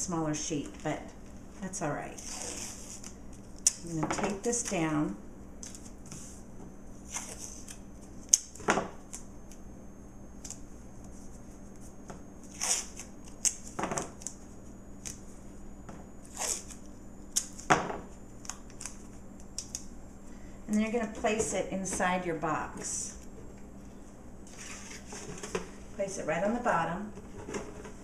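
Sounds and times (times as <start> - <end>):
tape ripping: 12.5 - 14.3, 16.2 - 17.7.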